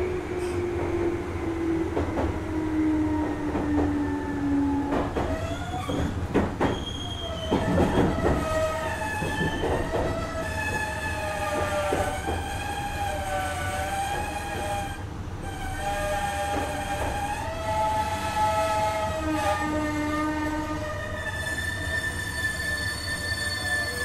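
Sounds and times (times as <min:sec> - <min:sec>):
train wheels rumbling on rail: 0:00.0 - 0:24.0
wheel squeal: 0:05.2 - 0:13.4, 0:21.1 - 0:24.0.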